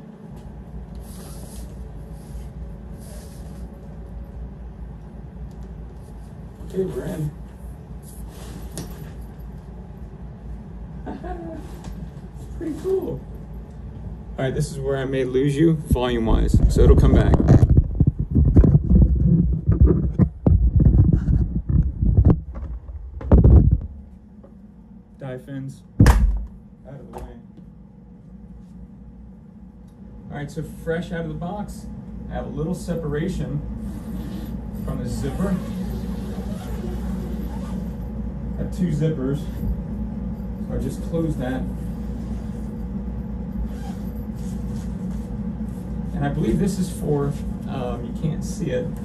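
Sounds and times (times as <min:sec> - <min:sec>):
steady low rumble: 0:00.0 - 0:49.0
fabric rubbing on microphone: 0:06.0 - 0:09.2, 0:15.9 - 0:22.4, 0:33.8 - 0:38.0, 0:41.6 - 0:42.9, 0:43.6 - 0:46.6.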